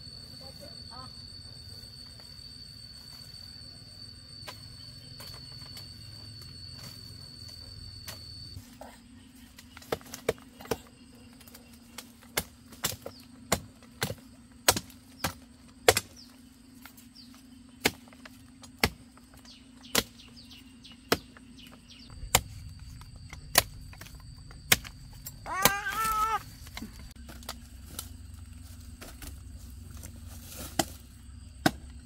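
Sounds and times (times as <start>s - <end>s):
blade chopping bamboo: 11.9s - 16.3s, 17.8s - 19.0s, 19.8s - 20.2s, 23.4s - 28.0s, 30.5s - 32.0s.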